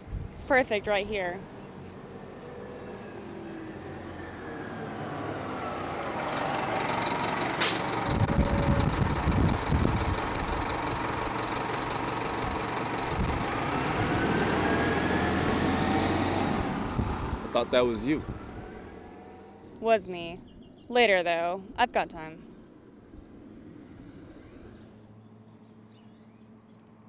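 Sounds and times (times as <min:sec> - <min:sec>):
bus engine rumbling: 0:00.0 - 0:27.0
air brakes hiss: 0:07.6 - 0:08.0.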